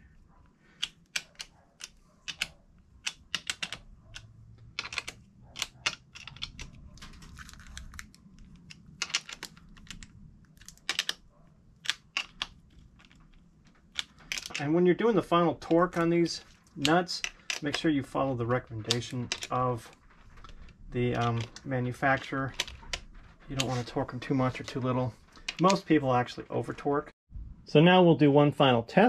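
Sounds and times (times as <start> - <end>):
metallic clicks of nut tightening: 0.7 - 6.8.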